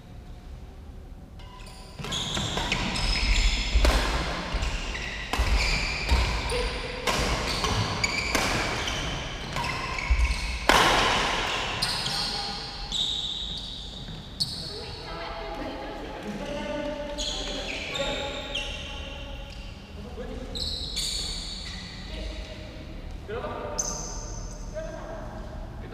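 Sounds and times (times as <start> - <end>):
court shoes squeaking: 1.4 - 15.1, 17.1 - 22.6, 23.7 - 24.7
rackets hitting shuttlecock: 2.0 - 12.6.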